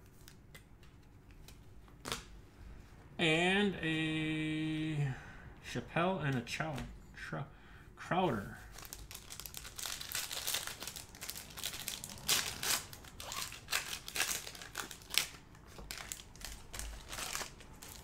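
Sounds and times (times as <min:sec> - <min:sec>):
plastic wrapper crinkling and tearing: 0:08.7 - 0:18.0.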